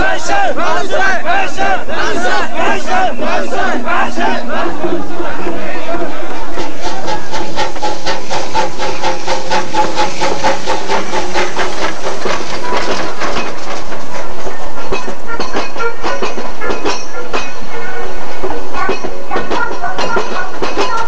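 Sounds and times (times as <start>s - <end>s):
train running noise: 0.0s - 21.0s
train wheels clicking over rail joints: 6.3s - 17.7s, 18.4s - 21.0s.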